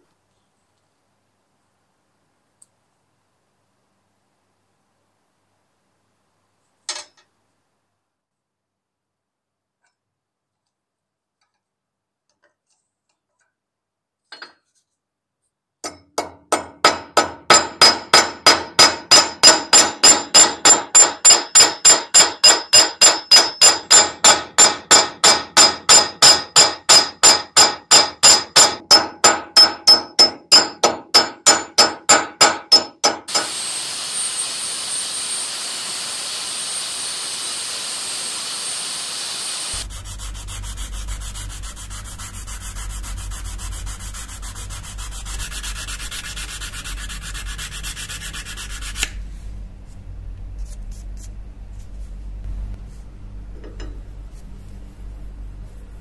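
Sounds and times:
small hammer striking metal: 15.8 - 33.6
steel rubbing against abrasive: 39.6 - 49.2.

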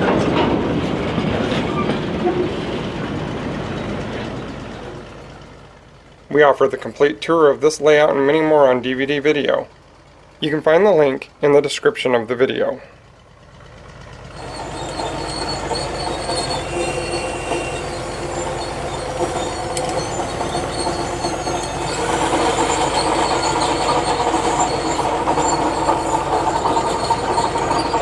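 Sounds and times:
model train mechanical hum: 2.8 - 28.0
model train rail noise: 12.6 - 28.0.

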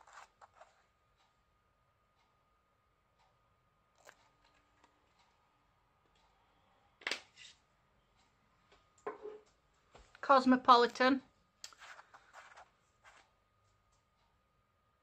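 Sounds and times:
soft rustle: 11.7 - 13.3.

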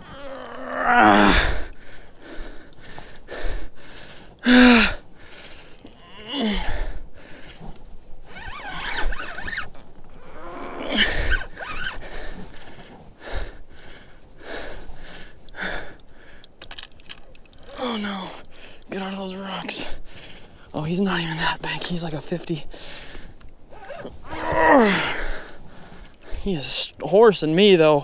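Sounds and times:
man grunting and groaning: 0.0 - 1.7, 4.4 - 5.0, 6.0 - 7.0, 10.3 - 11.3, 17.6 - 18.4, 24.3 - 25.5.

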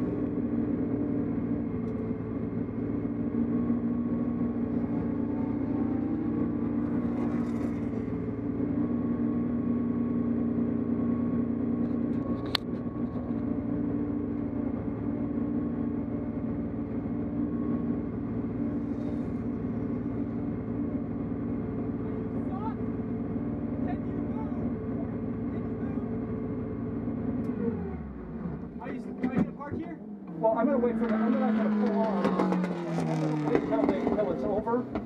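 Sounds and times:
car engine idling: 0.0 - 35.0.

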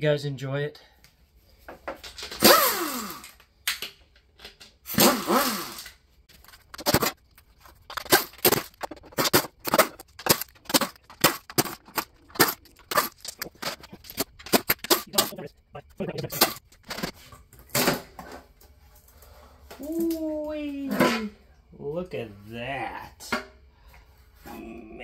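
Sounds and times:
pneumatic air tool running: 2.4 - 3.4, 4.9 - 6.0.

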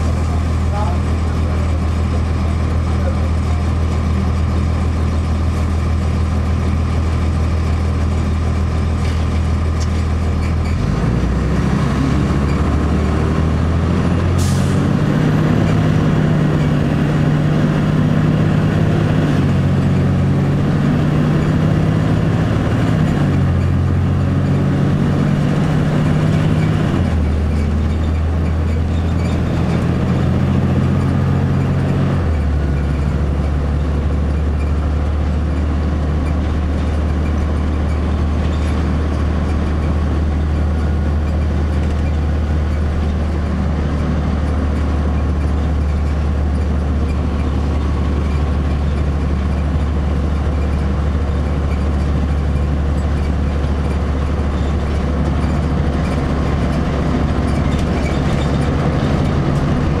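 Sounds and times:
bus diesel engine running: 0.0 - 60.0.

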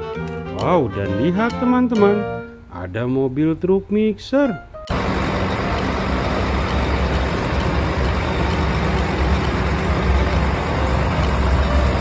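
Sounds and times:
diesel truck engine idling: 4.9 - 12.0.

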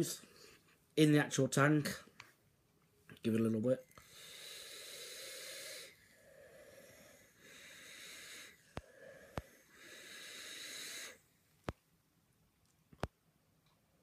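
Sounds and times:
airy hiss of vape drag: 4.0 - 11.2.

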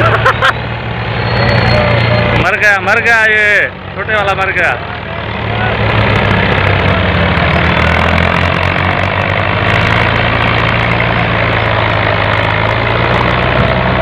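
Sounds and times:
tractor diesel engine labouring: 0.0 - 14.0.

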